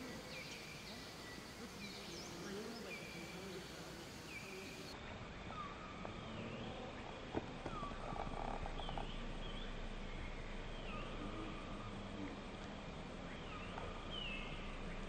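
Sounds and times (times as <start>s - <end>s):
birds chirping: 0.0s - 5.7s.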